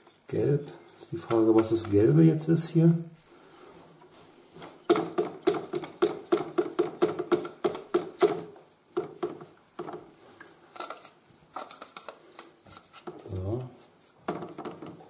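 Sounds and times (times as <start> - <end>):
paintbrush scrubbing plastic: 11.5 - 15.0.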